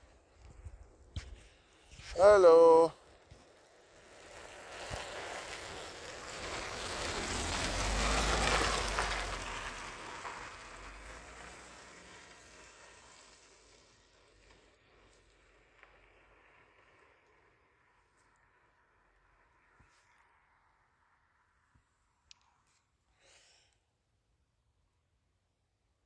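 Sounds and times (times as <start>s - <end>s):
vehicle passing by: 3.9s - 21.4s.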